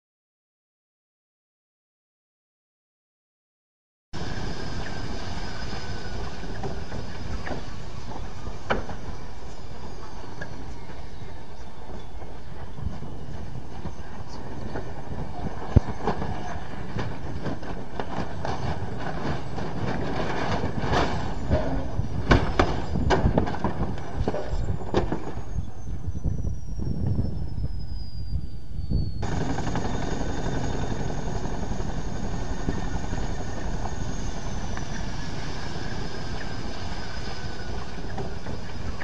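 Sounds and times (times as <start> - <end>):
engine whine winding down: 4.2 - 39.0
helicopter rotor and turbine noise: 4.2 - 39.0
loud bangs and cracks: 15.8 - 25.3.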